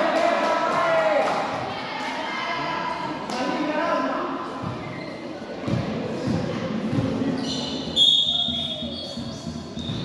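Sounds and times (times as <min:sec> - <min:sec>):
referee's whistle: 0:07.4 - 0:10.0.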